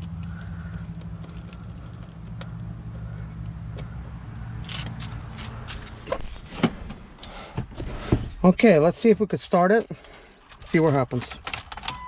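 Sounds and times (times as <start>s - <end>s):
steady low hum: 0.0s - 6.0s.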